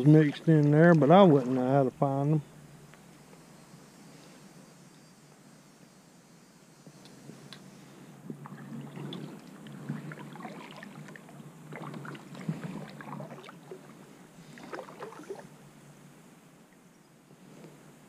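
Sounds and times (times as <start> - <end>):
paddle splashing in water: 0.2 - 1.8, 8.3 - 15.5.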